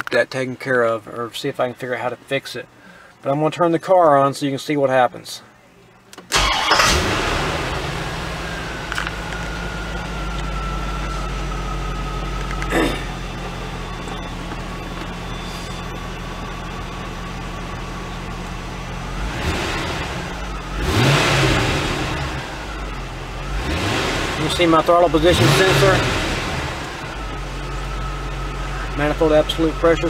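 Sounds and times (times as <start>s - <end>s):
car engine idling: 6.3s - 30.0s
faint high whine: 8.2s - 18.9s.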